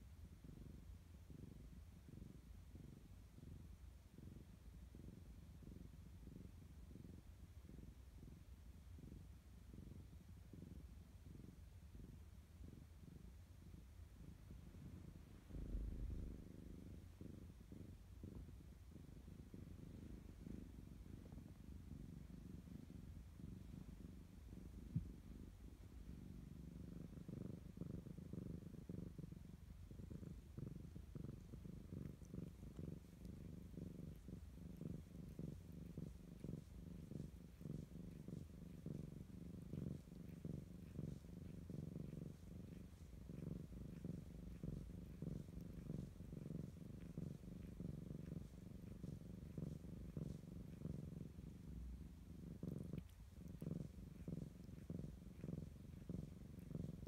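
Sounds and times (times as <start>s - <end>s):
cat purring: 0.0s - 57.0s.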